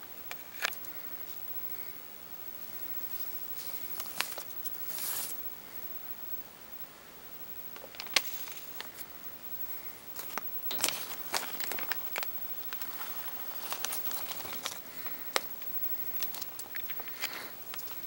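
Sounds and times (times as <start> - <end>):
newspaper crinkling under rats: 3.0 - 5.5, 7.8 - 9.1, 10.1 - 18.0.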